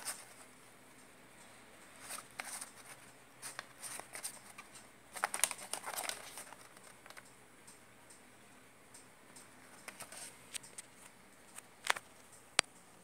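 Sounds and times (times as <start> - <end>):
small box crinkling and clicking: 2.0 - 7.3, 9.7 - 12.1.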